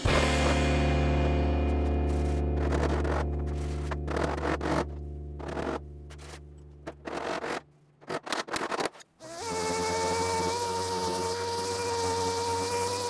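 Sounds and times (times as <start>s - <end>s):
short scraping strokes: 1.8s - 7.6s.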